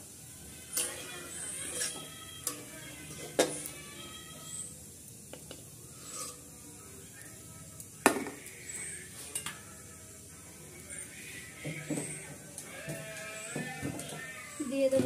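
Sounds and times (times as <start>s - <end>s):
metal spatula clinking on steel: 0.7s - 3.6s, 8.9s - 9.7s.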